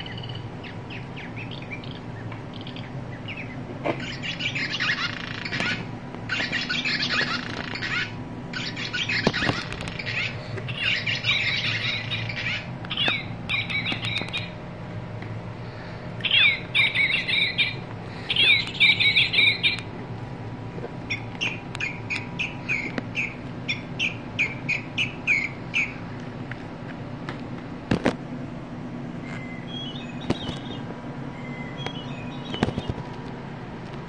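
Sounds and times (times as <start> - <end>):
toy bird call with trill: 0.0 - 14.5, 16.2 - 19.8.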